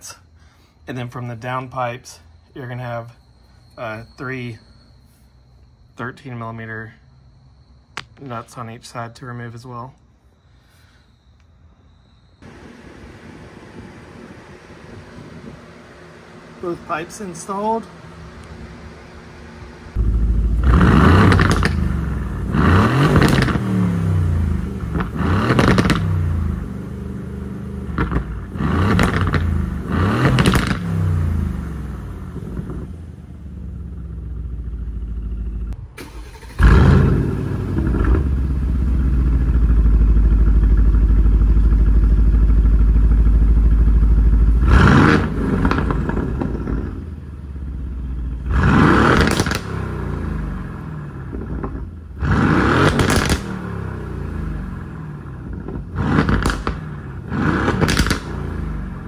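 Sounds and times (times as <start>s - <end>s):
car engine idling: 12.4s - 59.0s
car engine revving: 12.4s - 59.0s.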